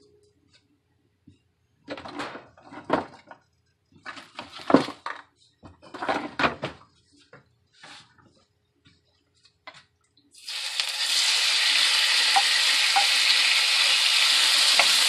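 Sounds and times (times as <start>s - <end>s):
kitchenware rustling and clattering: 1.9s - 9.9s.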